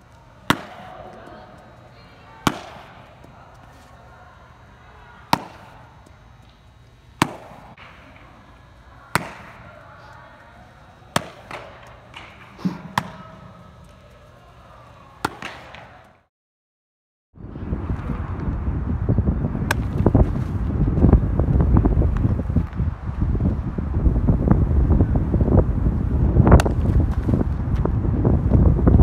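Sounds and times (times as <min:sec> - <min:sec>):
baseballs popping into mitt: 0:00.4 - 0:01.4, 0:02.5 - 0:03.8, 0:05.3 - 0:06.6, 0:07.2 - 0:08.3, 0:09.2 - 0:09.6, 0:11.1 - 0:14.0, 0:15.2 - 0:16.0, 0:19.7 - 0:20.0, 0:26.6 - 0:27.3.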